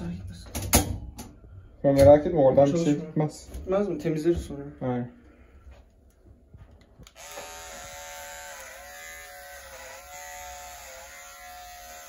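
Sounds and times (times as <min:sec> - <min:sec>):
electric hair clipper humming: 0:07.0 - 0:12.0.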